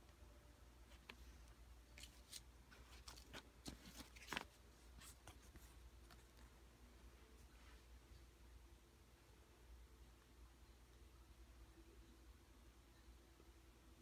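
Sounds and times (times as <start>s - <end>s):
paper banknotes crinkling: 2.0s - 5.4s.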